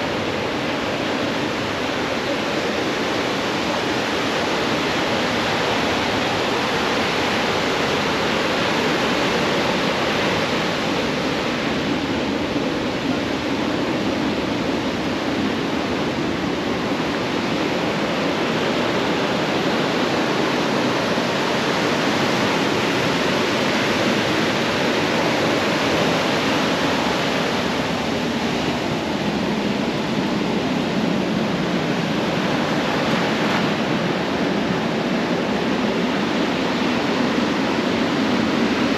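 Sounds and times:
ocean surf rushing: 0:00.0 - 0:38.9.

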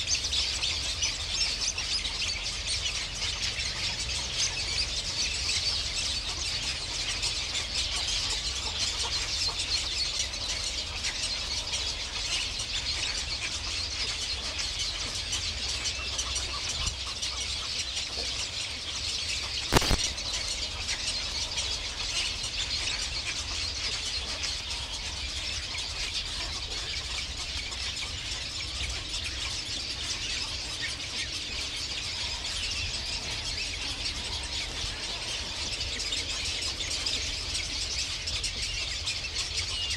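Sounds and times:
birds chirping and squealing: 0:00.0 - 0:39.9
sharp click: 0:19.7 - 0:20.1.

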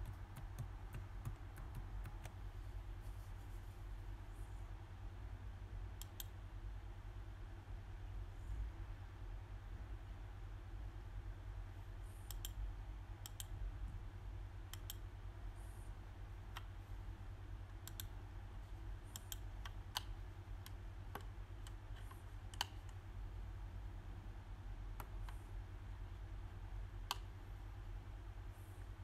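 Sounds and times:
computer mouse clicking: 0:00.0 - 0:02.4, 0:06.0 - 0:06.4, 0:12.2 - 0:12.6, 0:13.2 - 0:13.5, 0:14.7 - 0:15.0, 0:17.7 - 0:18.2, 0:19.1 - 0:23.0
steady low hum: 0:00.0 - 0:29.0.

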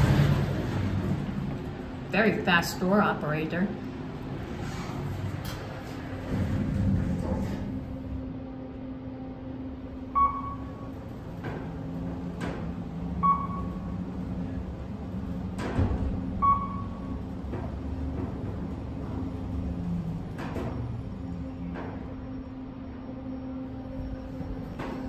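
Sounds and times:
elevator hum: 0:00.0 - 0:25.0
short electronic beeps: 0:10.1 - 0:10.9, 0:13.2 - 0:13.9, 0:16.4 - 0:17.1.

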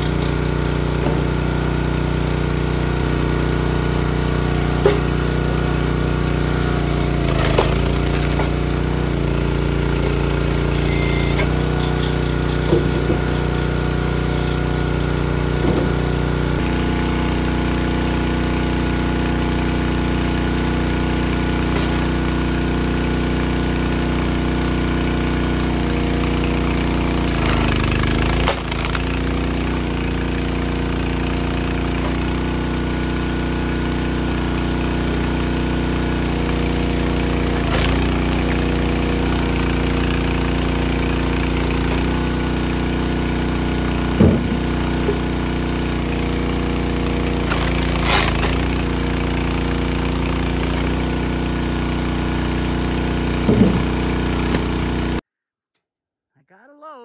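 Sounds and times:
loader engine running: 0:00.0 - 0:55.2
sharp knocks: 0:53.5 - 0:54.6.

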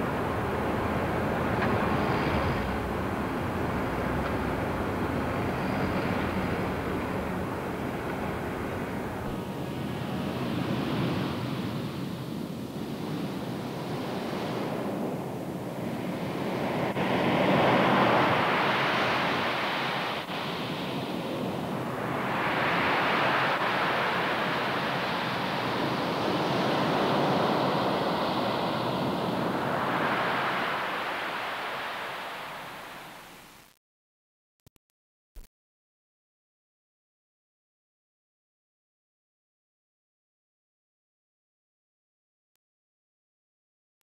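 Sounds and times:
rushing surf-like noise: 0:00.0 - 0:33.8.

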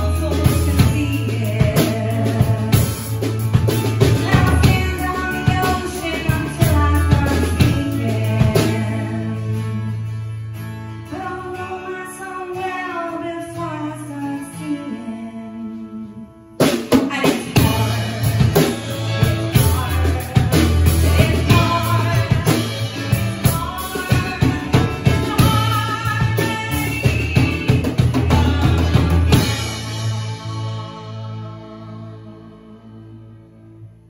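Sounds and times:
drums crashing: 0:00.0 - 0:09.1, 0:16.6 - 0:31.3
woman singing: 0:00.0 - 0:10.2, 0:11.1 - 0:33.4
live rock band playing: 0:00.0 - 0:12.8, 0:15.8 - 0:33.4.

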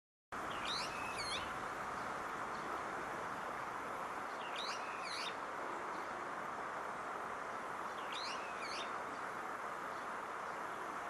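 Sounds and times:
steady background hiss: 0:00.4 - 0:11.0
bird calling: 0:00.5 - 0:01.6, 0:04.4 - 0:05.4, 0:07.9 - 0:09.0.

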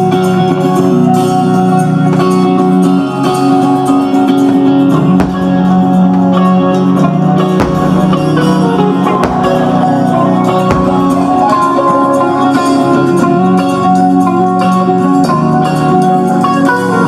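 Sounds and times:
live rock band playing: 0:00.0 - 0:17.0
sharp drum hits: 0:05.2 - 0:05.8, 0:07.6 - 0:09.9, 0:10.6 - 0:11.5.

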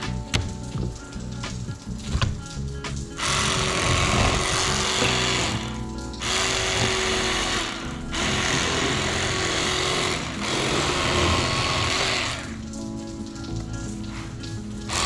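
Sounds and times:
faint background music: 0:00.0 - 0:15.0
small electric motor buzzing: 0:03.2 - 0:12.6.

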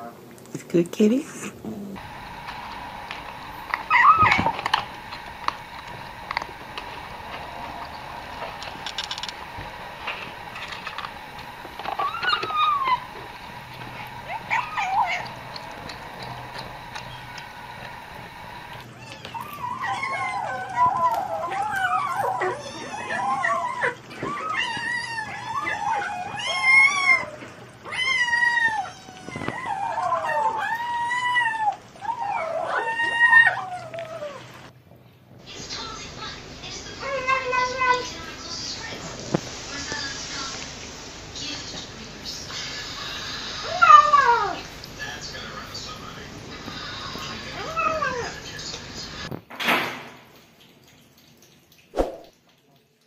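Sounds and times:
cats chewing and smacking: 0:02.0 - 0:29.9
cat high-pitched vocalization: 0:11.9 - 0:13.3, 0:14.0 - 0:15.6, 0:18.9 - 0:34.5, 0:37.0 - 0:38.1, 0:43.5 - 0:44.7.

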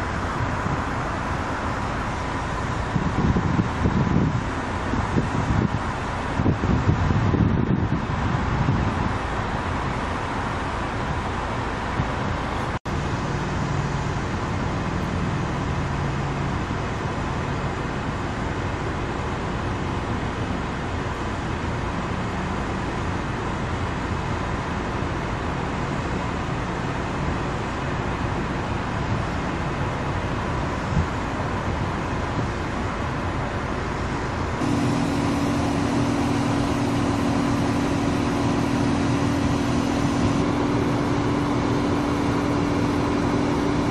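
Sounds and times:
car road noise: 0:00.0 - 0:43.9
low hum: 0:34.6 - 0:43.9.

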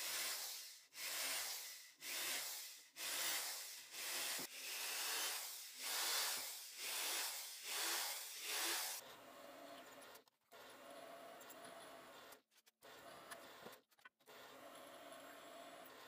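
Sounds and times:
cordless drill boring into wood: 0:01.0 - 0:09.0.

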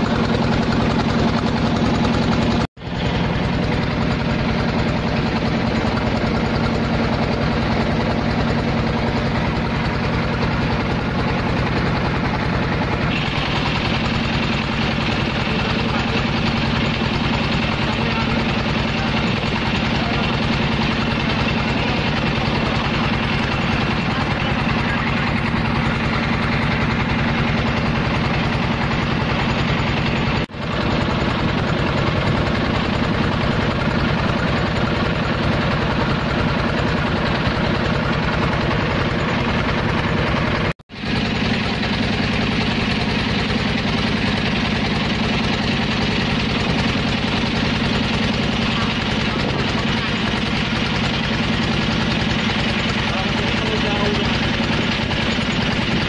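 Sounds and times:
boat engine running: 0:00.0 - 0:56.0.

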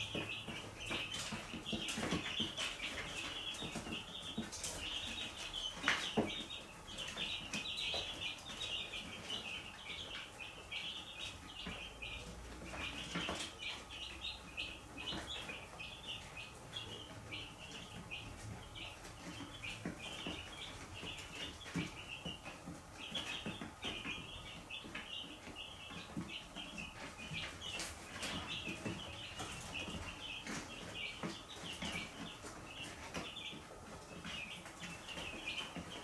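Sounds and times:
sharp taps and rustles: 0:00.0 - 0:10.3
chicks peeping: 0:00.0 - 0:36.0.

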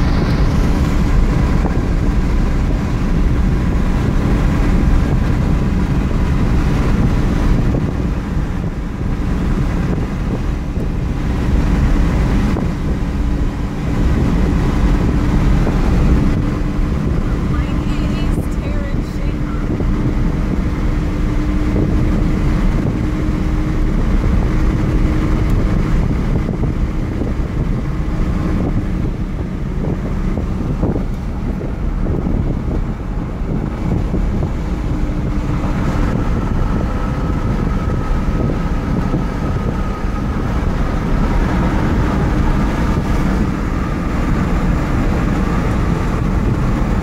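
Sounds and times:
car engine and road noise: 0:00.0 - 0:47.0
thin steady whine: 0:13.1 - 0:19.8.

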